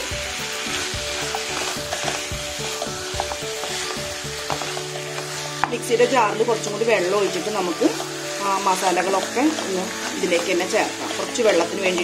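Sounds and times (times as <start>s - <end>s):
chicken sizzling in a pan: 0.0s - 12.0s
wooden spatula scraping a pan: 0.0s - 12.0s.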